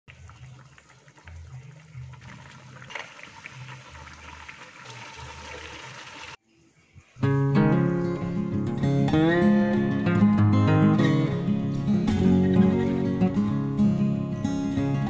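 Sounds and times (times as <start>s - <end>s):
curry sauce bubbling in a pan: 0.1s - 6.4s.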